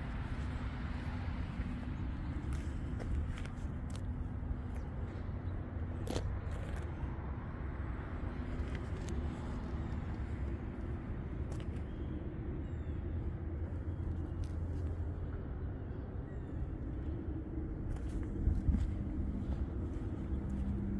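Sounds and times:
car engine idling: 18.0s - 20.9s.

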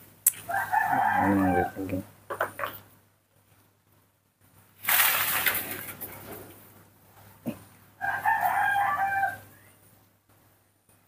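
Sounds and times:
rustling noise: 4.5s - 6.8s.

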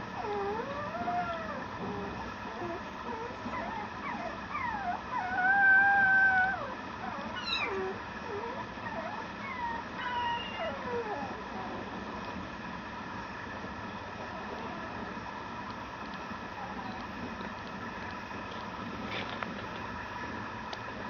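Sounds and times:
puppy whining: 0.0s - 12.0s, 16.1s - 17.6s.

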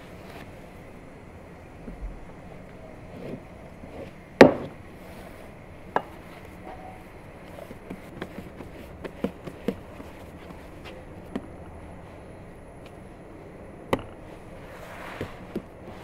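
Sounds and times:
low background noise: 0.0s - 16.0s
dough thumps and pats: 4.4s - 4.8s, 7.4s - 11.6s.

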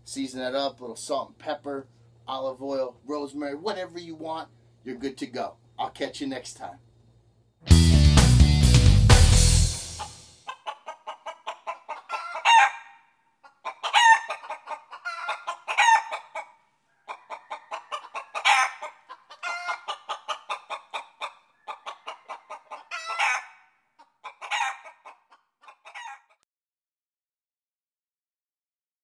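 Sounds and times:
chicken clucking and squawking: 10.0s - 26.4s.

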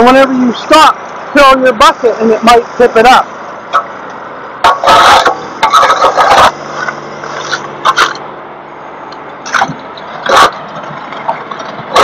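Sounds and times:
tractor engine humming: 0.0s - 12.0s
loader bucket scraping pavement: 2.0s - 8.5s, 9.1s - 12.0s.

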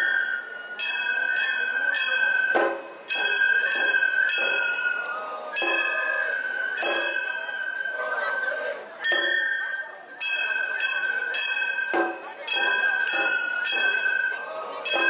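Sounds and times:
hand gongs clanging: 0.0s - 7.5s.

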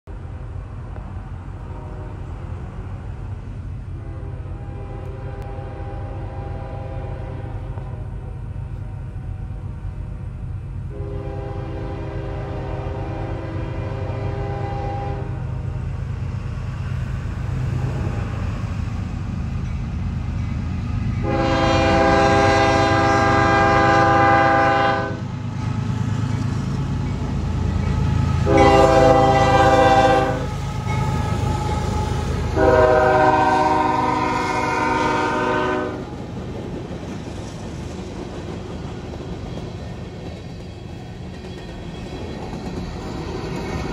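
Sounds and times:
freight train rumbling past: 0.1s - 43.9s
train air horn blasts: 1.6s - 2.4s, 4.0s - 9.5s, 10.9s - 15.4s, 21.2s - 25.3s, 27.9s - 36.1s.

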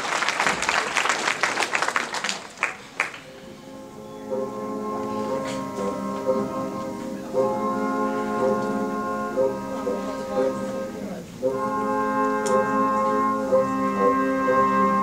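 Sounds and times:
music of long held chords: 3.3s - 15.0s.

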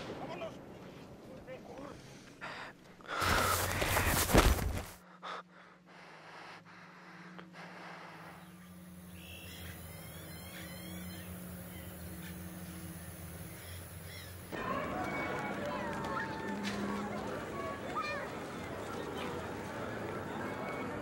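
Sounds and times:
faint bird chirps: 8.1s - 14.5s.

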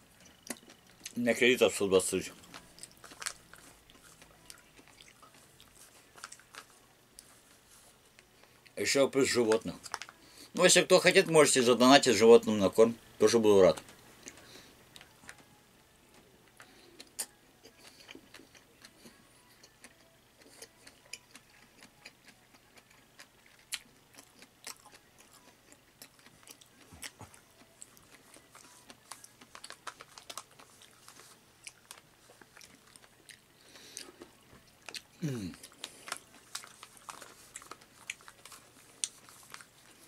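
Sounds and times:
wet chewing and lip smacks: 0.2s - 1.2s, 16.6s - 19.0s, 19.6s - 40.0s.

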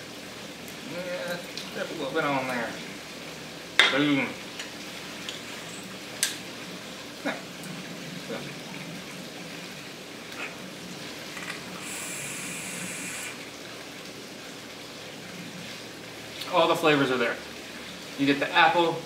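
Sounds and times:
steady background hiss: 0.0s - 19.0s
vape atomizer hissing: 11.8s - 13.4s.

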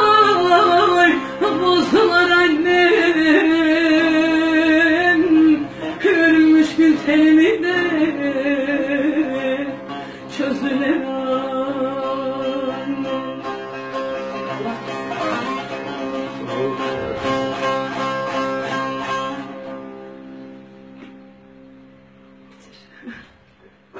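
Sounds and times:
woman singing folk song: 0.0s - 14.5s
plucked lute: 0.0s - 23.9s.

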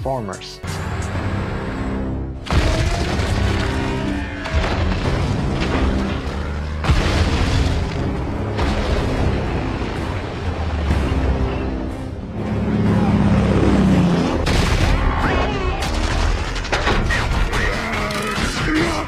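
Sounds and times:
dramatic film music: 0.0s - 19.0s
explosions booming: 2.5s - 9.5s.

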